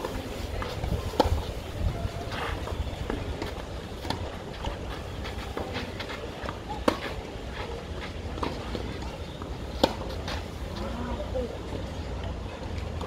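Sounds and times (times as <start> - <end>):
wind rumble on microphone: 0.0 - 5.2.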